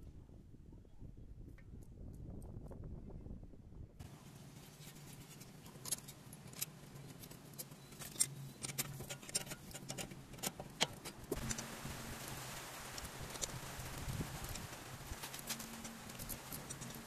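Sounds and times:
low steady hum: 0.0s - 17.0s
light clicks and taps of metal: 4.8s - 11.7s.

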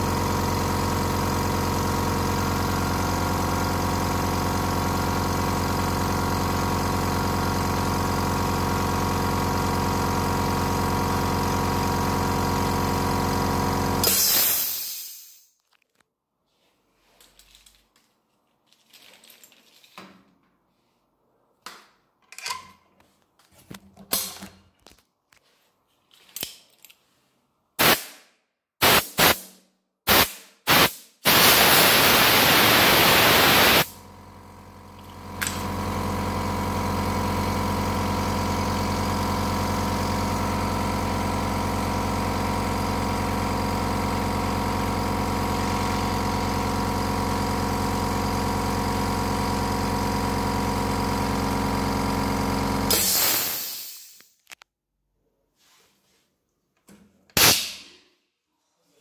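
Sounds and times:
air compressor running: 0.0s - 15.5s, 27.8s - 28.2s, 28.8s - 29.5s, 30.1s - 54.4s
compressed air blasts: 14.0s - 15.5s, 27.8s - 34.0s, 52.9s - 54.4s, 57.4s - 58.0s.

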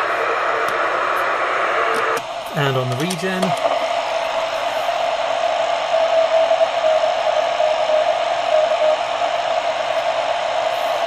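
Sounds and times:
radio band noise hiss: 0.0s - 11.0s
morse code tone: 6.0s - 9.0s.

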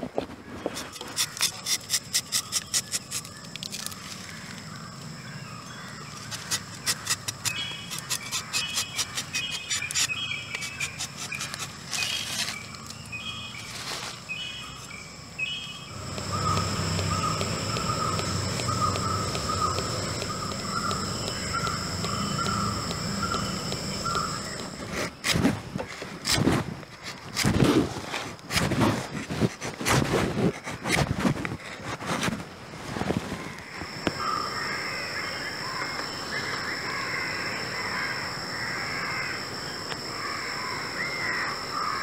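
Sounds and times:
birds chirping: 2.3s - 26.0s
steady high-pitched tone: 15.1s - 25.2s, 33.8s - 42.0s
low warbling bird call: 15.4s - 24.8s.

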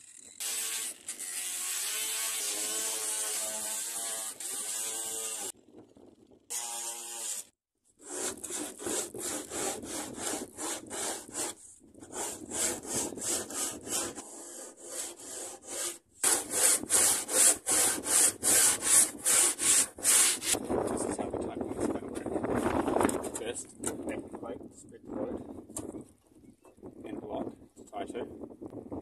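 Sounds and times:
hand tool strokes on plywood: 8.0s - 20.6s.

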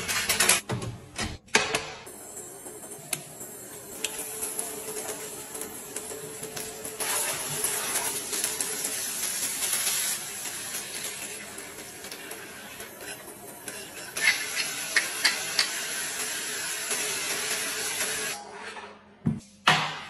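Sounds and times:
oil sizzling in a frying pan: 7.0s - 12.8s, 14.2s - 18.3s.

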